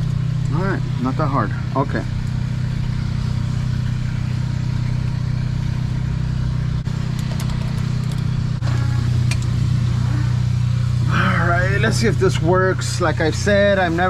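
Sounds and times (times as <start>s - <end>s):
diesel truck engine idling: 0.0s - 14.0s.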